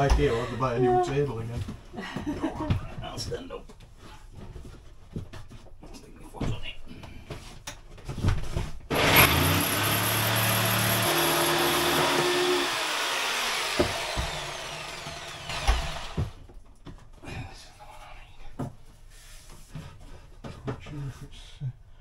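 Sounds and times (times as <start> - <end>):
power saw cutting wood: 8.9 - 16.4
knocks: 13.7 - 14.6.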